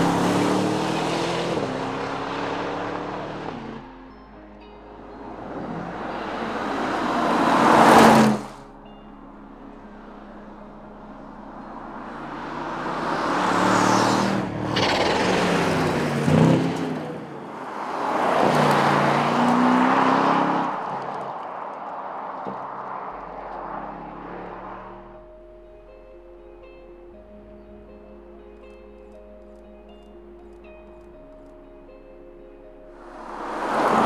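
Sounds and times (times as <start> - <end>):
car driving past: 0.0 - 4.1, 5.0 - 25.6, 32.9 - 34.0.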